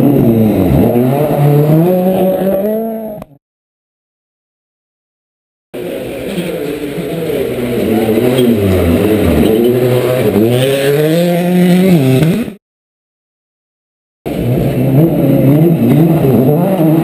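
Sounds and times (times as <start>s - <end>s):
rally car engine revving: 0.0s - 3.4s, 5.8s - 12.6s, 14.3s - 17.0s.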